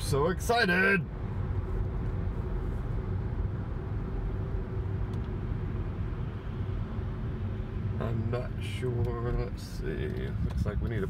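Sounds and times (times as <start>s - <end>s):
car cabin road rumble: 0.0s - 11.0s.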